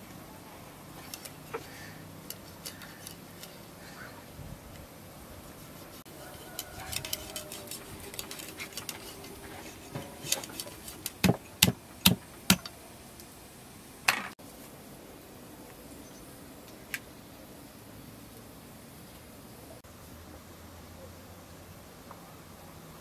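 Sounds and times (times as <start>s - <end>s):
knife cutting and scraping fish: 1.0s - 3.9s, 5.5s - 12.6s.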